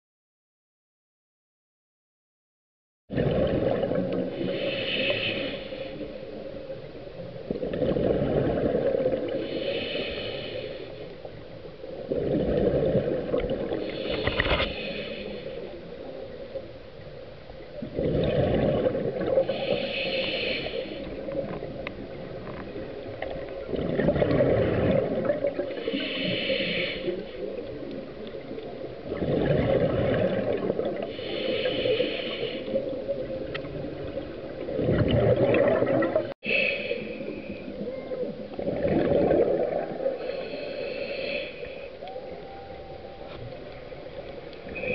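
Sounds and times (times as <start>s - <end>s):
bubbles rushing on exhale: 3.1s - 4.5s, 7.5s - 9.4s, 12.1s - 14.4s, 17.8s - 19.8s, 23.3s - 25.8s, 29.0s - 31.2s, 32.7s - 36.4s, 38.6s - 40.2s
regulator hiss on inhale: 4.3s - 6.4s, 9.3s - 11.7s, 13.6s - 16.2s, 19.4s - 21.4s, 25.6s - 27.7s, 31.0s - 33.1s, 36.4s - 37.8s, 40.1s - 42.0s, 44.1s - 44.9s.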